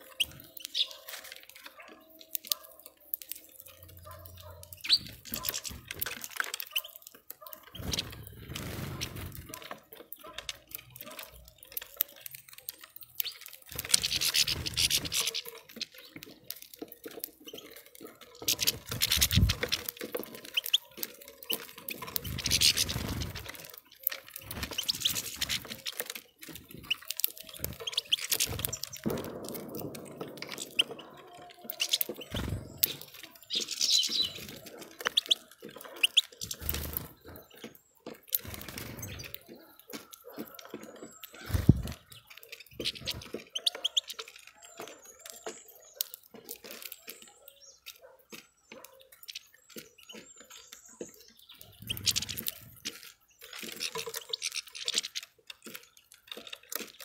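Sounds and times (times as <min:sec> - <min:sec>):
birds pecking and tapping: 0:00.0 - 0:57.0.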